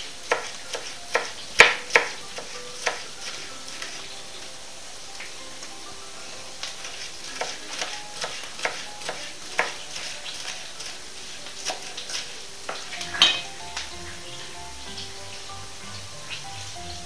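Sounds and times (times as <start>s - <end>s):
potatoes sizzling in a pan: 0.0s - 17.0s.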